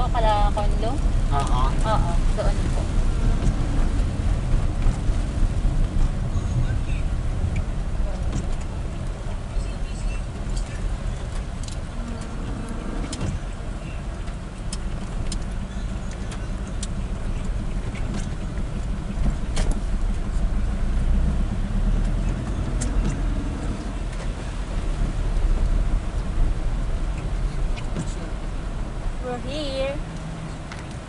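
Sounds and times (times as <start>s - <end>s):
vehicle engine and road rumble: 0.0s - 31.0s.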